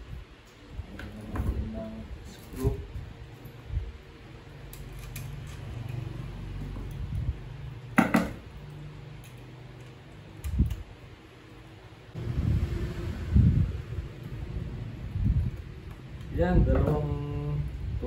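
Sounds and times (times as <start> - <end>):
fan parts knocking and clinking: 7.9 - 10.0, 16.1 - 17.2.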